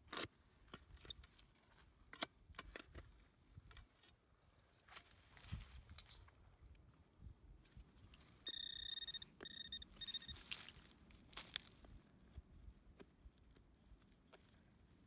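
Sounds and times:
metal detector beeping: 8.4 - 10.8.

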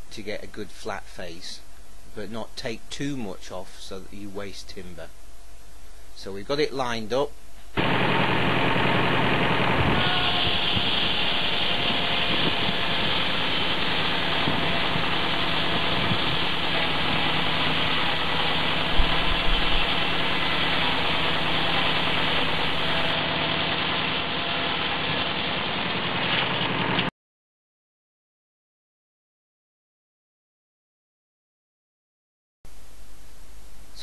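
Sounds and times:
saw cutting log: 7.8 - 26.9.

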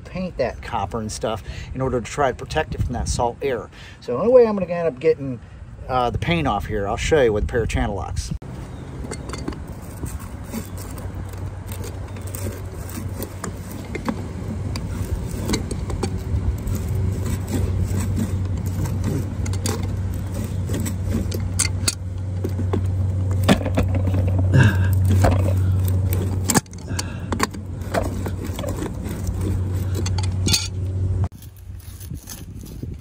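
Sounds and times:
steady low hum: 0.0 - 33.0
pliers scraping copper pipe: 9.0 - 33.0.

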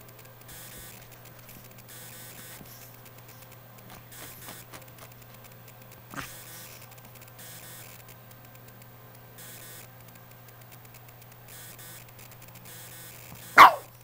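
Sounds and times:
puppy yipping: 13.5 - 14.0.

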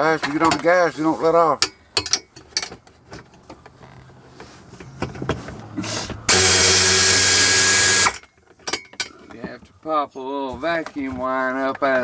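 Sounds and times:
air ratchet hissing and whining: 6.3 - 8.2.

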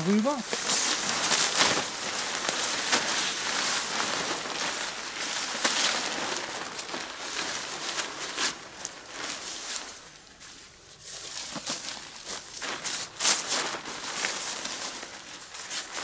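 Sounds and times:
tarp rustling and crackling: 0.0 - 16.0.

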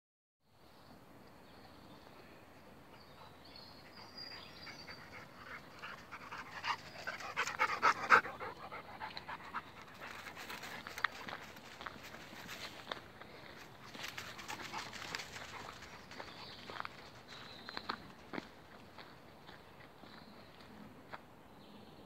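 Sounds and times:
dog panting: 3.1 - 11.4.

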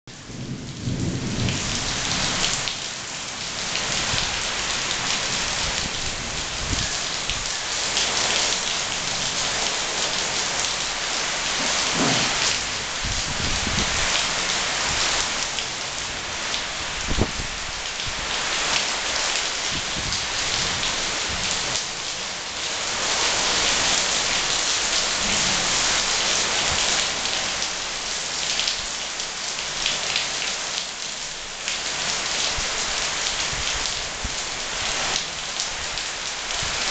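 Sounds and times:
heavy rain: 0.1 - 36.9
sharp knock: 12.0 - 12.4.

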